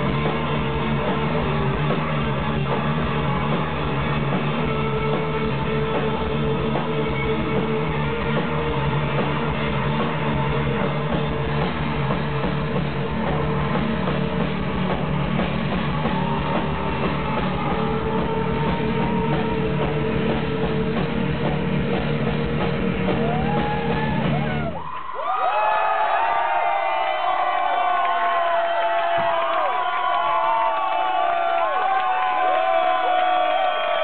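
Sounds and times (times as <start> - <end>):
distorted electric guitar: 0.0 - 24.7
drum kit: 0.0 - 24.9, 27.3 - 34.0.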